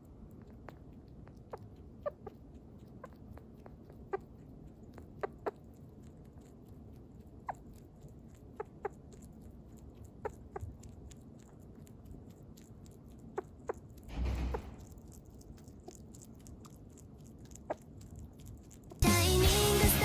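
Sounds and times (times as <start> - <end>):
sugar glider chirping: 0.4 - 19.0.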